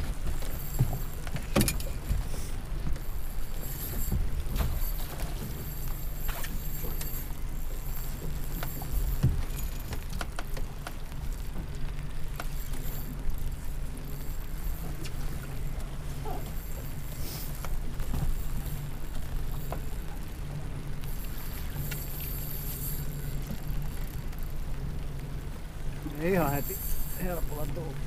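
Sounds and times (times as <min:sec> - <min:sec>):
knocks and clicks on hull: 0:00.0 - 0:13.3, 0:17.6 - 0:22.7
boat hum: 0:00.0 - 0:28.0.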